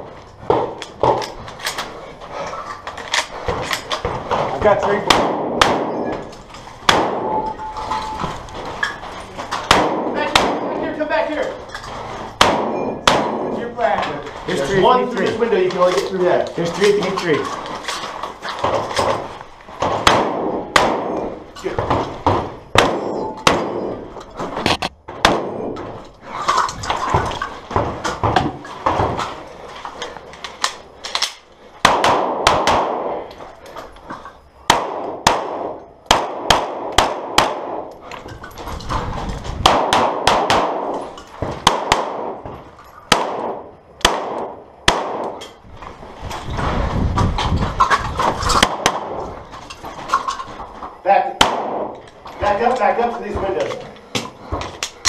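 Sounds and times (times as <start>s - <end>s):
shotgun firing: 5.0s - 6.1s, 6.8s - 7.5s, 9.6s - 10.8s, 12.4s - 13.6s, 19.8s - 24.0s, 31.8s - 33.2s, 34.7s - 37.9s, 39.6s - 41.0s, 41.6s - 42.4s, 43.1s - 45.4s, 51.4s - 51.9s
handgun firing: 5.1s - 6.0s, 6.8s - 7.4s, 9.6s - 10.7s, 12.4s - 13.5s, 19.8s - 21.2s, 22.3s - 23.9s, 31.1s - 33.2s, 39.6s - 41.0s, 41.6s - 42.4s, 43.1s - 45.4s, 51.4s - 51.9s.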